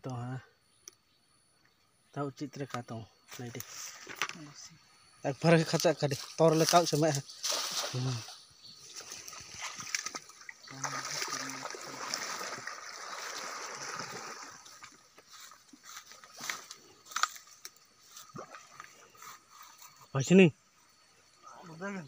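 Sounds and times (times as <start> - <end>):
water sloshing and splashing: 6.6 - 20.0
water dripping: 9.0 - 15.4.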